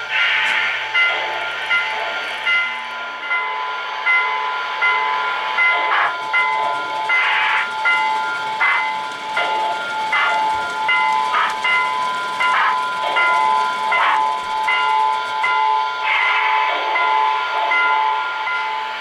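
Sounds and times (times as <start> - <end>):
steam hiss bursts: 0.0 - 1.4.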